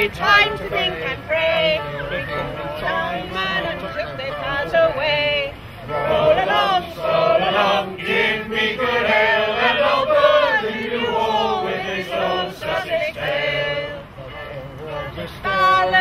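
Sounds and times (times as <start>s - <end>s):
fiddle: 0.0s - 7.6s
group singing in unison: 0.0s - 16.0s.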